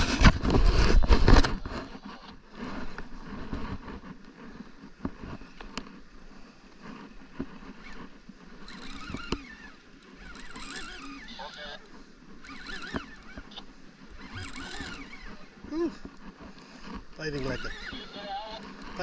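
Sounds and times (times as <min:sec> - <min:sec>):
boat and wind noise: 0:00.0 - 0:19.0
fishing reel clicks and knocks: 0:08.6 - 0:15.4.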